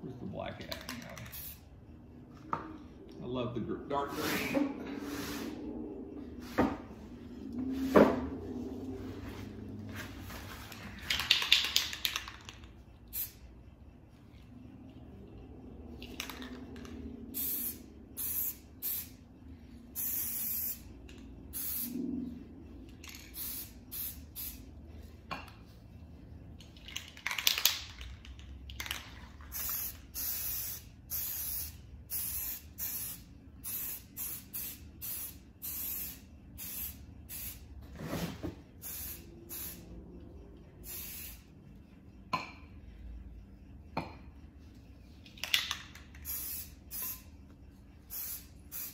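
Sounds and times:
spray paint can hissing: 0:01.1 - 0:01.6, 0:11.1 - 0:13.4, 0:16.0 - 0:19.2, 0:19.9 - 0:20.9, 0:21.5 - 0:22.0, 0:23.0 - 0:24.7, 0:29.5 - 0:37.7, 0:38.8 - 0:39.8, 0:40.8 - 0:41.5, 0:45.6 - 0:47.3, 0:48.0 - 0:48.9.

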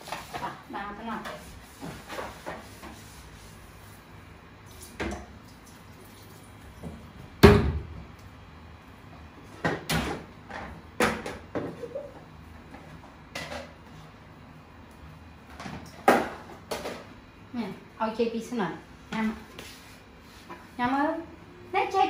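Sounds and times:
plastic dishes knocking and clattering: 0:09.6 - 0:12.1.

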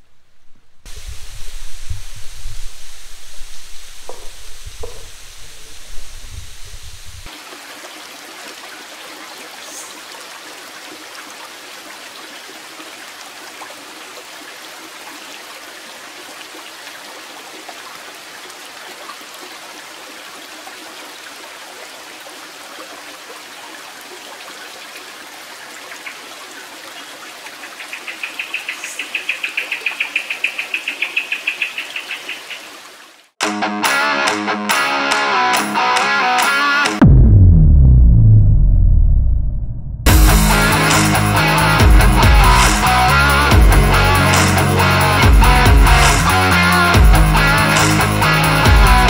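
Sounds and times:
flowing water: 0:00.9 - 0:33.4.

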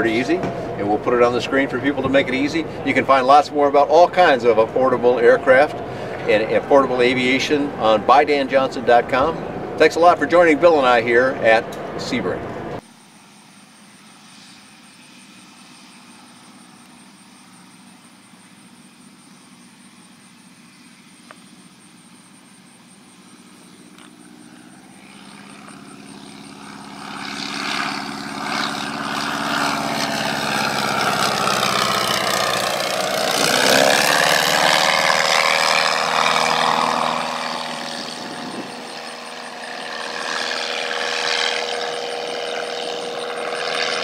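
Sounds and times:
propeller plane flying over: 0:00.0 - 0:44.0.

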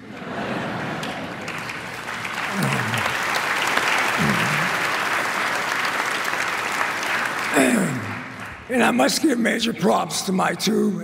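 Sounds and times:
audience applauding: 0:00.5 - 0:08.9.

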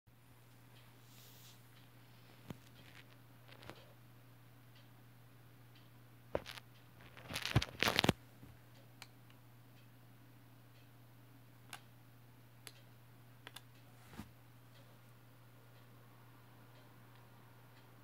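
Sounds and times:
rustling handling noise: 0:06.4 - 0:08.2.

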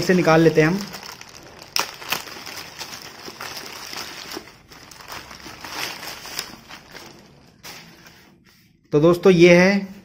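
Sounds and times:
plastic mailer bag crinkling: 0:00.0 - 0:08.0.

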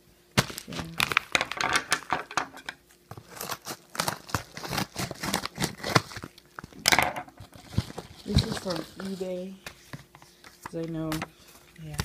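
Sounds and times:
paper mailer crinkling and tearing: 0:00.4 - 0:01.4, 0:03.1 - 0:09.6.

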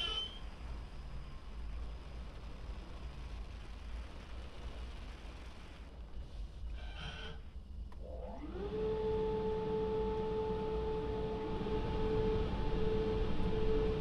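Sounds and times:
drying blower whine: 0:00.0 - 0:01.6, 0:06.7 - 0:14.0.

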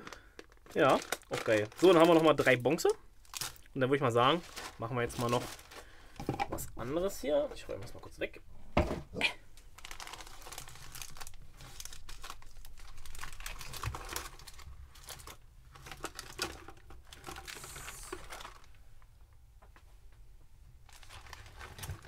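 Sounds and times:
plastic packaging crinkling: 0:00.0 - 0:06.1, 0:09.6 - 0:18.8, 0:20.8 - 0:22.0.

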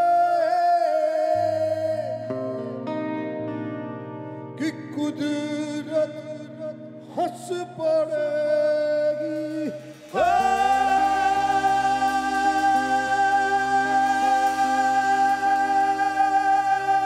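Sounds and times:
man singing sliding notes: 0:00.0 - 0:02.8, 0:04.6 - 0:17.0
held chords: 0:09.2 - 0:17.0.

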